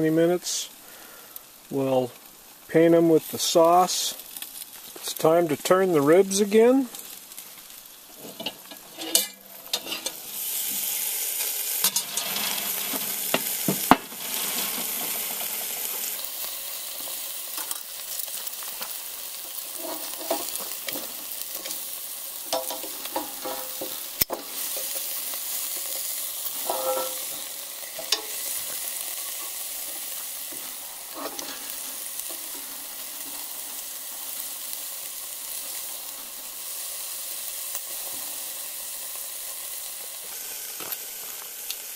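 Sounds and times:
ribs sizzling on grill: 0.0s - 41.9s
metal tongs clinking on grate: 8.2s - 10.2s, 11.8s - 13.0s, 17.0s - 33.7s.

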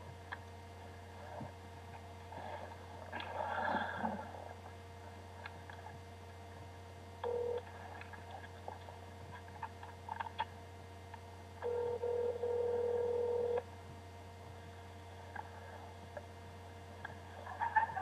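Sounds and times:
steady low hum: 0.0s - 18.0s
telephone ringback tone: 7.2s - 7.6s, 11.6s - 13.6s.

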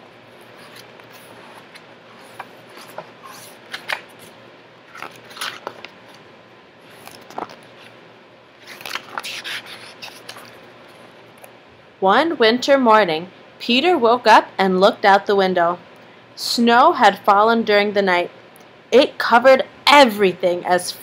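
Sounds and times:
book pages rustling: 0.3s - 6.2s, 6.8s - 8.0s, 8.6s - 11.5s.

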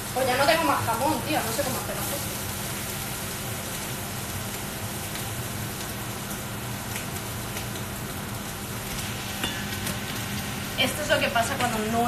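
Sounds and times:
tortillas sizzling on griddle: 0.0s - 12.0s
steady low hum: 6.1s - 12.0s.

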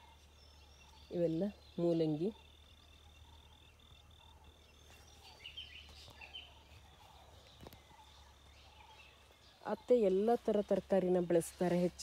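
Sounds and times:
insect trill: 0.0s - 4.8s
bird chirps: 0.0s - 12.0s.

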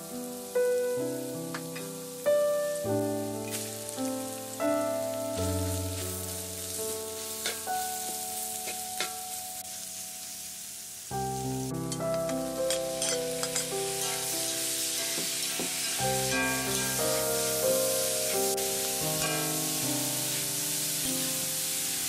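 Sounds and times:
food sizzling in wok: 0.0s - 22.0s
background music: 11.2s - 22.0s
metal spatula scraping pan: 12.7s - 14.3s, 14.9s - 17.3s.

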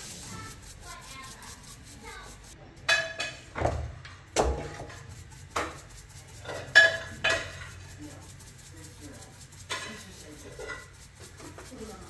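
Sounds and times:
metal pans clinking: 2.8s - 4.8s, 6.4s - 7.8s.

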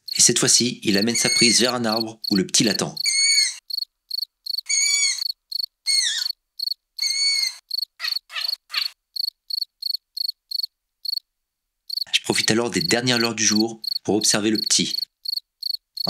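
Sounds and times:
crickets chirping: 0.0s - 11.3s, 11.9s - 16.0s
young owl begging calls: 0.9s - 3.8s, 4.5s - 9.3s, 12.4s - 15.1s.

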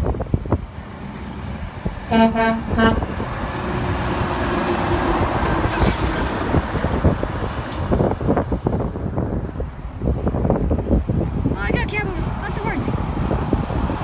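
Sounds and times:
truck passing by: 0.0s - 14.0s
truck air horn blasts: 2.1s - 3.3s.

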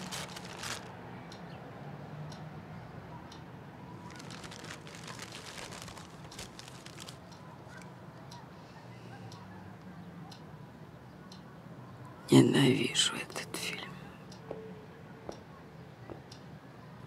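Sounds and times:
light clicks and crackles: 0.0s - 0.9s, 4.0s - 10.5s
paper and cardboard rustling: 0.0s - 0.9s, 4.0s - 7.8s.

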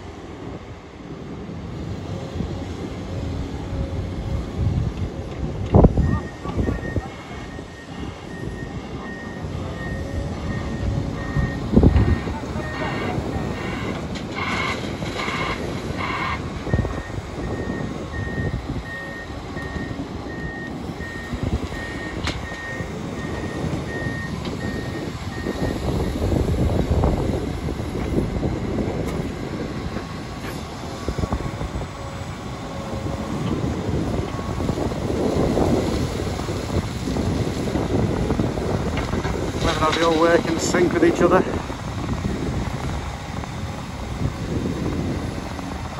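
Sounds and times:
excavator engines rumbling: 0.0s - 45.9s
reversing alarm beeping: 5.9s - 26.3s.

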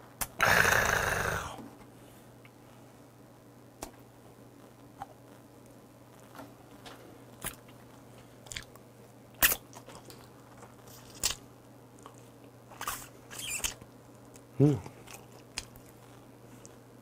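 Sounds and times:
mouth smacks and chewing: 8.4s - 8.8s.

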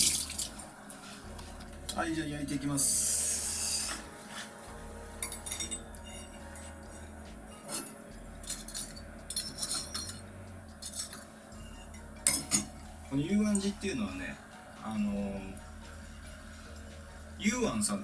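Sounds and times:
metal skewers clinking on grill: 7.7s - 11.2s.

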